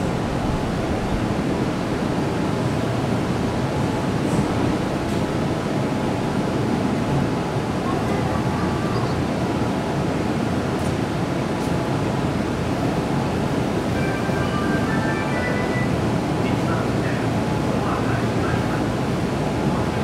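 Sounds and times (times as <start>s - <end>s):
electric train equipment running: 12.2s - 17.4s.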